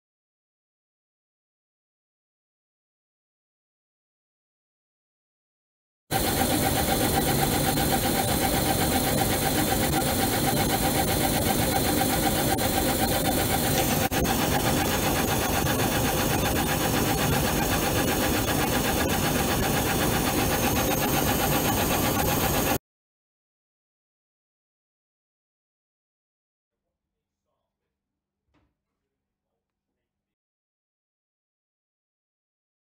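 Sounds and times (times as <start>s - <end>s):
laser engraver whine: 6.1s - 22.8s.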